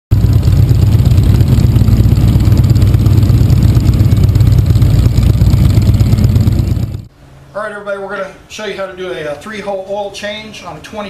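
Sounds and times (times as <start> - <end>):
motorcycle engine running: 0.1 - 7.1.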